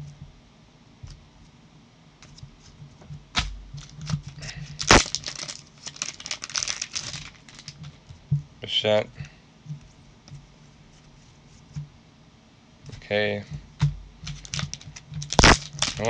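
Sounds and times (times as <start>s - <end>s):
plastic cracking: 3.4s - 8.0s, 13.8s - 16.0s
plastic crinkling: 3.8s - 8.0s, 14.2s - 16.0s
plastic card sleeves clicking: 4.8s - 7.9s, 14.3s - 16.0s.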